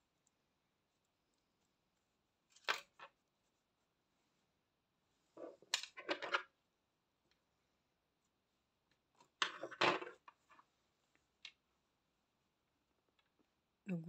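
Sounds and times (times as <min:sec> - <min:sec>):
clicks and rustles of handling: 0:02.4 - 0:03.5, 0:05.3 - 0:06.6.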